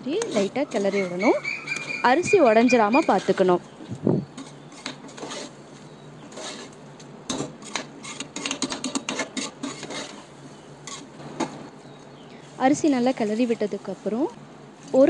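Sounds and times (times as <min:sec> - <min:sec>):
spoon scraping inside a pot: 0:00.2 - 0:03.6, 0:04.3 - 0:05.6, 0:06.3 - 0:06.8, 0:07.6 - 0:11.2.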